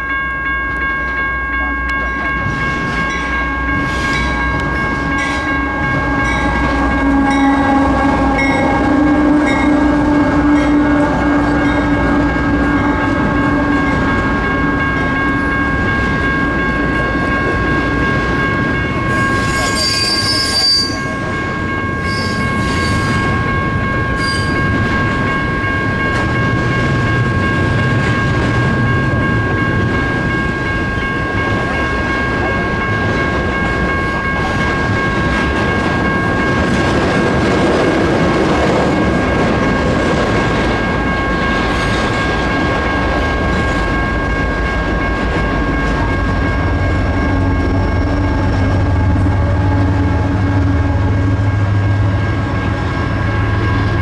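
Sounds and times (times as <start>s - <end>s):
crossing bell ringing: 0.0s - 54.0s
train rolling: 0.0s - 54.0s
train wheel squeal: 2.6s - 9.8s, 19.0s - 23.5s, 24.1s - 25.1s.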